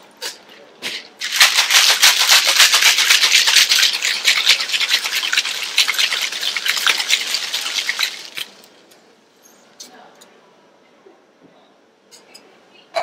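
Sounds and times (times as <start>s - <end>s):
ice rattling in cocktail shaker: 1.2s - 8.7s.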